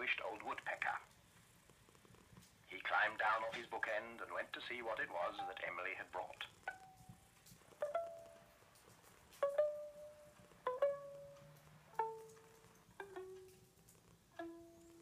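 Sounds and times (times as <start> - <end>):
plucked string notes descending: 9.4 - 13.6.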